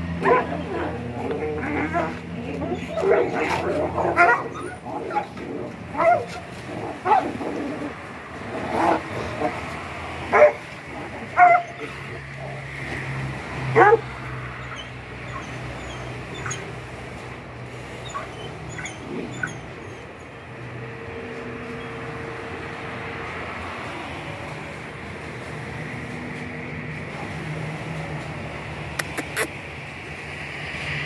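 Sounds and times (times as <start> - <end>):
dogs barking and yelping: 0.0 - 20.8.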